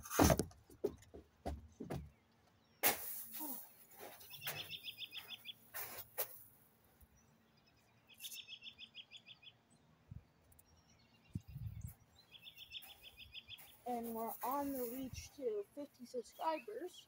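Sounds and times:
faint knocks and rustles: 0.0s - 2.6s
songbird trilling: 4.2s - 5.6s, 8.0s - 9.6s, 10.6s - 13.8s.

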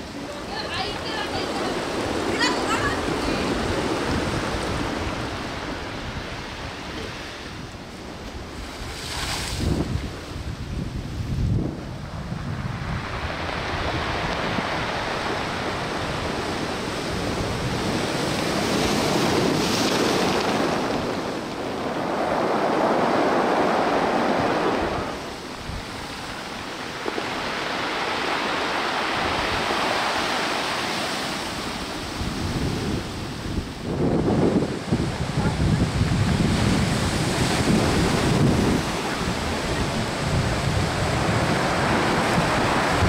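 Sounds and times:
waves breaking against seawall: 13.0s - 33.8s.

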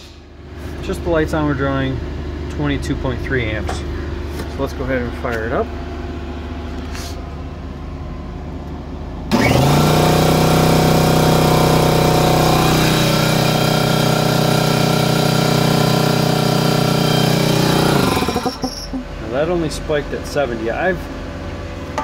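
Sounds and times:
electric air compressor running: 9.3s - 19.2s.

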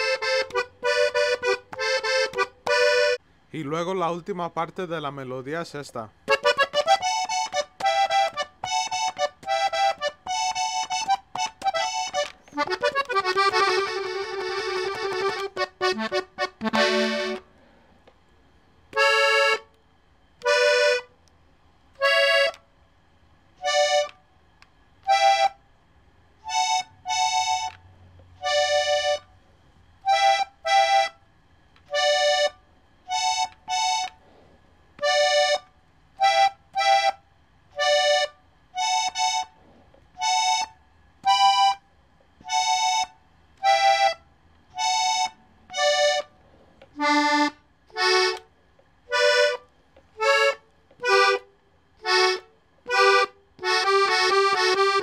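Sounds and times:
button accordion melody: 0.0s - 3.2s, 6.2s - 17.6s, 18.9s - 19.8s, 20.4s - 21.2s, 21.9s - 22.7s, 23.6s - 24.2s, 25.0s - 25.6s, 26.4s - 29.4s, 30.0s - 31.2s, 31.8s - 34.3s, 35.0s - 39.6s, 40.2s - 41.8s, 42.4s - 55.0s.

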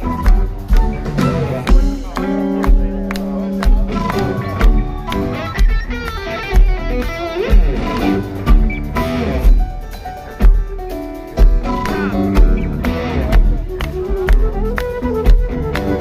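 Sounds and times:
flute: 0.0s - 6.7s, 11.6s - 16.0s
electric guitar: 0.0s - 16.0s
live rock band playing: 0.0s - 16.0s.

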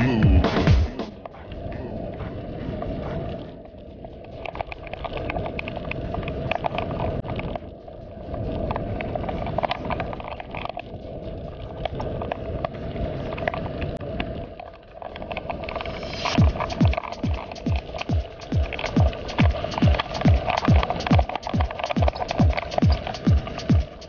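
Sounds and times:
bicycle tyres rolling on rough lane: 1.0s - 24.0s
bike frame rattling and clicking: 15.0s - 24.0s.

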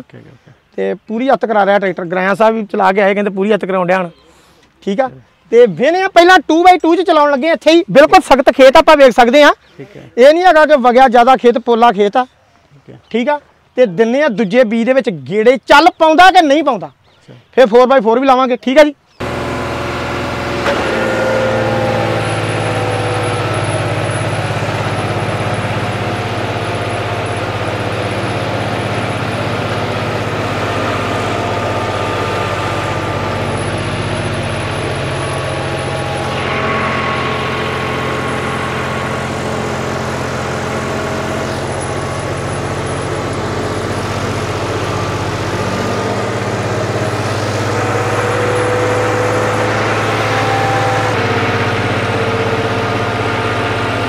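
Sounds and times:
tractor diesel engine under load: 19.2s - 54.0s.

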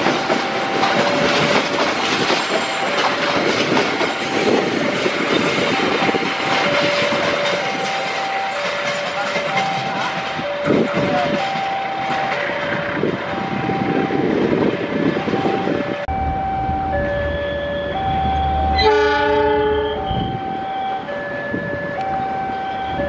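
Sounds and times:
train wheels rushing: 0.0s - 16.1s
diesel locomotive rumble: 0.0s - 23.0s
level crossing alarm ringing: 0.0s - 23.0s
locomotive horn blast: 18.2s - 20.5s.

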